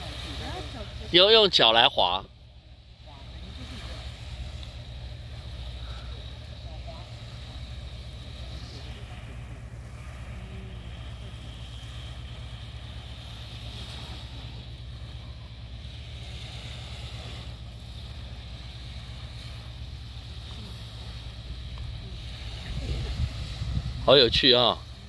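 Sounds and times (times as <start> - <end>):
small waves on pebbly shore: 0.0 - 25.0
wind buffeting microphone: 17.0 - 25.0.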